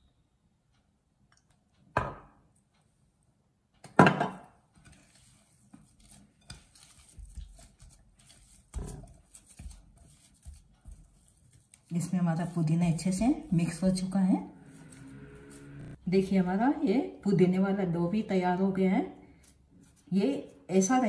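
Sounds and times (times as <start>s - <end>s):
dough squishing and slapping: 4.8s - 14.3s.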